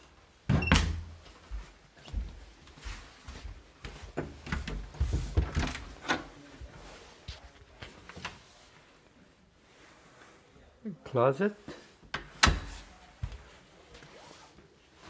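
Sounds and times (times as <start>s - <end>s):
wooden closet door opening: 0.5s - 1.2s, 4.2s - 6.4s, 12.1s - 12.9s.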